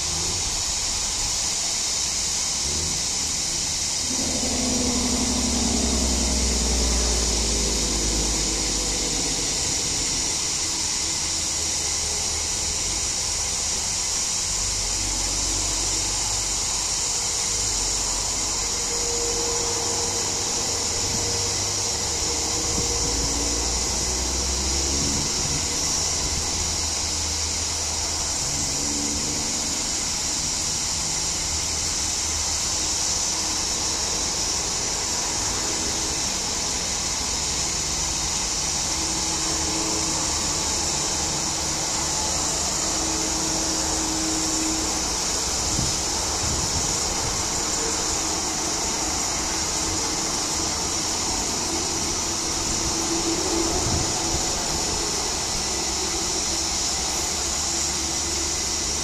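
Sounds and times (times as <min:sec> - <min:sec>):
cicadas buzzing: 0:00.0 - 0:59.0
low rumble: 0:02.2 - 0:13.4.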